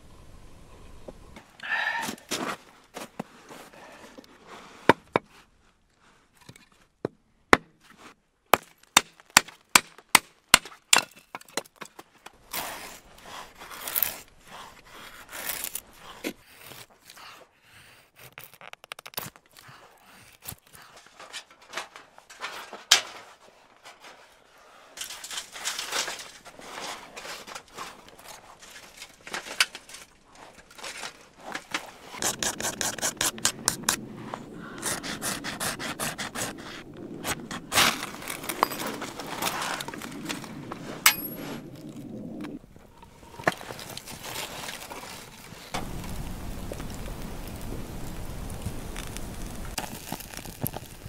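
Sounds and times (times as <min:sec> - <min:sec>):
hatchet chopping wood: 0:08.5 - 0:11.8
knife scraping stick: 0:12.5 - 0:17.2, 0:31.8 - 0:34.0.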